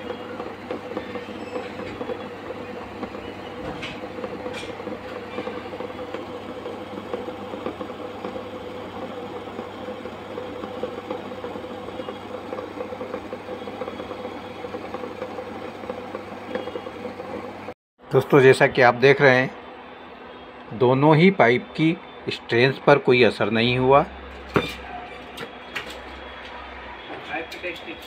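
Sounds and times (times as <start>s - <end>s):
water boiling in a pot: 0.0s - 17.7s.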